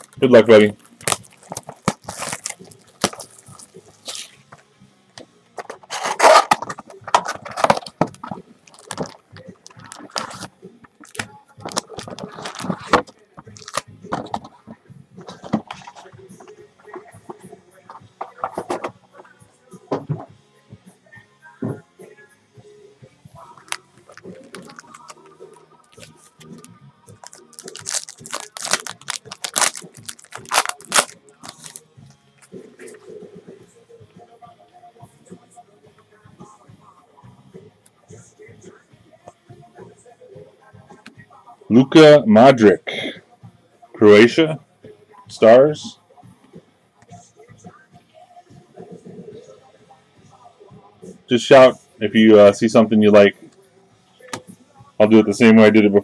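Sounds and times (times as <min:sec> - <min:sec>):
foil wrapper tearing and crinkling: 0:00.0 - 0:04.4, 0:05.8 - 0:13.0, 0:13.6 - 0:13.8, 0:23.6 - 0:31.8
cardboard box being opened: 0:01.1 - 0:04.3.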